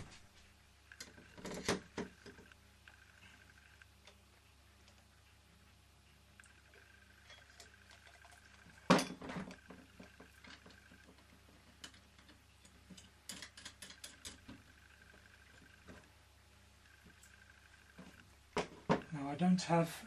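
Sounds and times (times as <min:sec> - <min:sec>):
small parts tapping and clicking: 0:06.4 - 0:16.1.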